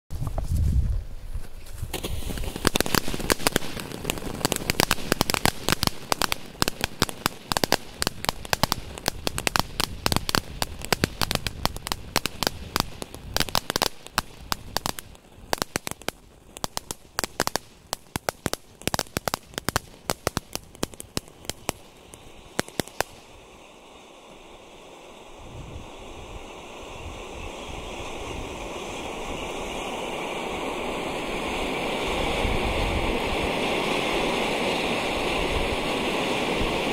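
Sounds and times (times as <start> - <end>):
steady rushing noise: 0.2 - 36.9
firework pops and cracks: 1.5 - 23.4.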